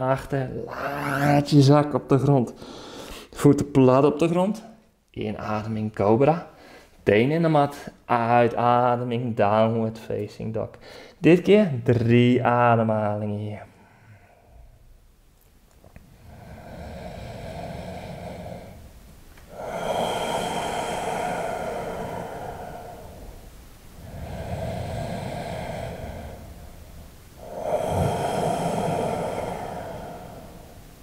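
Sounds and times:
slow deep breathing: 2.6 - 3.4, 13.7 - 15.0, 15.9 - 31.0.

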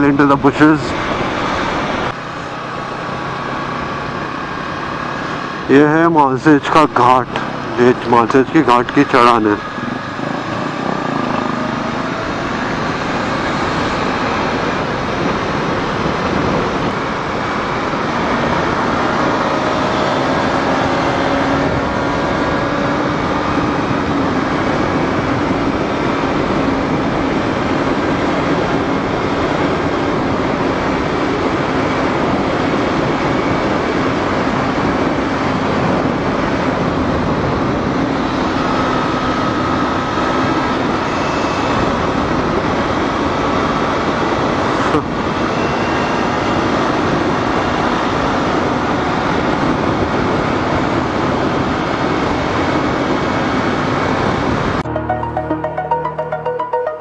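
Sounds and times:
motorcycle engine running: 9.6 - 44.7
wind over microphone: 9.6 - 54.8.

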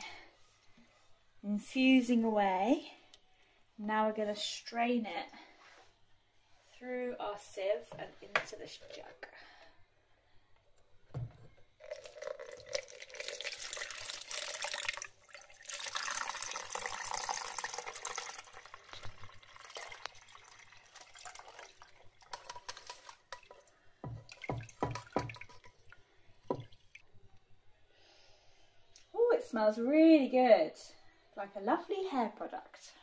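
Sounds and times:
liquid pouring through sieve: 11.8 - 27.0
liquid trickling and dripping: 11.8 - 27.1.

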